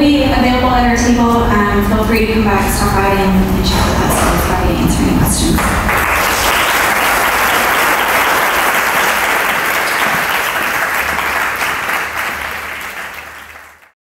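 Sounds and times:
audience applauding: 5.6s - 14.0s.

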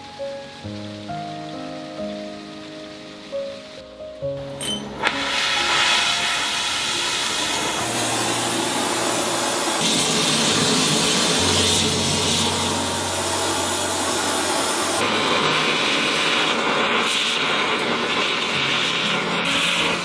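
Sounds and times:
low music notes: 0.0s - 15.5s
welding torch flame hissing: 0.0s - 20.0s.

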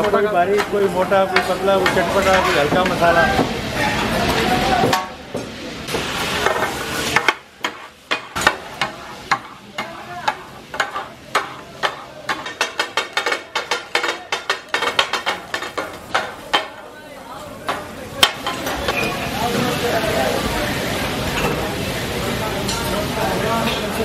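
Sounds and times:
metal spatula clacking on griddle: 0.0s - 3.5s, 4.2s - 16.9s, 17.6s - 19.1s
meat sizzling in oil: 0.0s - 16.4s.

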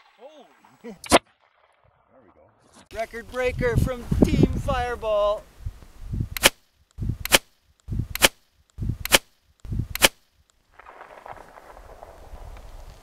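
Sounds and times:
potato cannon shots: 8.1s - 8.4s, 10.0s - 10.2s.

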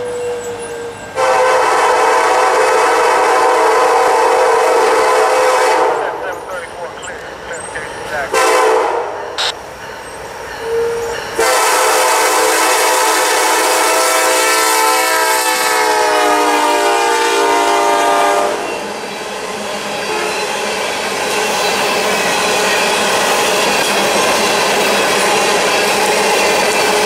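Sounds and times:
locomotive air horn blast: 1.2s - 6.2s, 8.3s - 9.5s, 11.4s - 18.7s
train wheels clattering on rails: 18.6s - 27.0s.

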